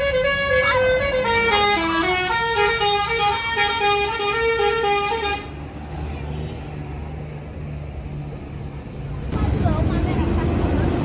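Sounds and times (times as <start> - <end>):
musical air horn melody: 0.0 - 5.5
bus engine humming: 0.0 - 11.0.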